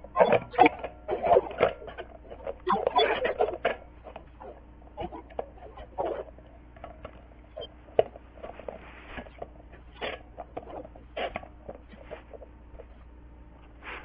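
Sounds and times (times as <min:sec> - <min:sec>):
hand rustling on metal pot: 0:08.2 - 0:12.6.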